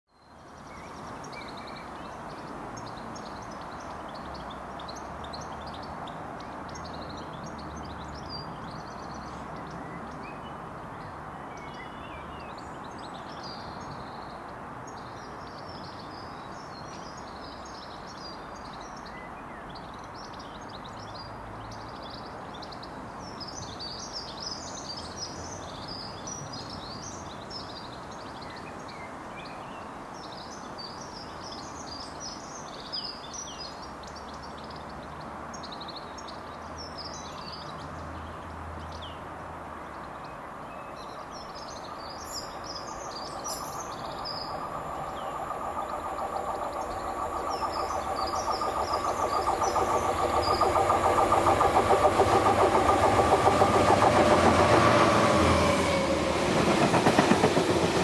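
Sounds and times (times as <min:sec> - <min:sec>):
birds chirping: 0:41.1 - 0:58.0
distant diesel locomotive rumble: 0:41.8 - 0:58.0.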